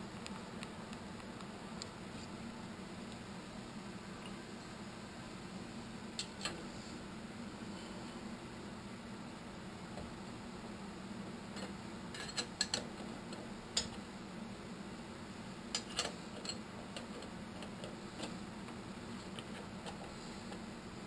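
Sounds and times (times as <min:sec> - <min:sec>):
low steady hum: 0:00.0 - 0:21.0
metallic clicks and taps: 0:11.6 - 0:14.0.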